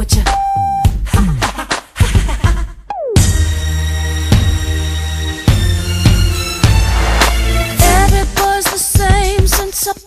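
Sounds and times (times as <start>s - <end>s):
electronic hip hop beat: 0.0s - 4.9s.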